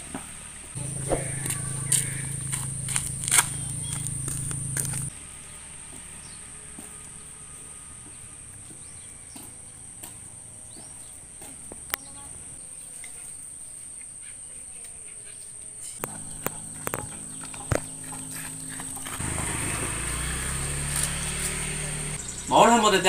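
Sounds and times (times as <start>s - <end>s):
sharp clicks: 0.8s - 5.1s
insect drone: 0.8s - 5.2s, 16.0s - 22.8s.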